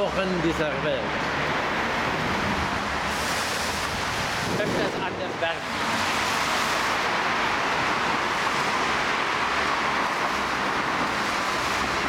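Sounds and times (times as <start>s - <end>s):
bicycle tyre and air rushing: 1.3s - 5.0s.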